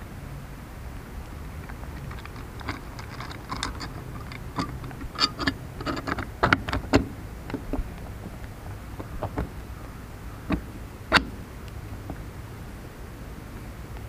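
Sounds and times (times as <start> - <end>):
metal hardware clicking and clinking: 1.7 - 7.9, 10.4 - 11.4.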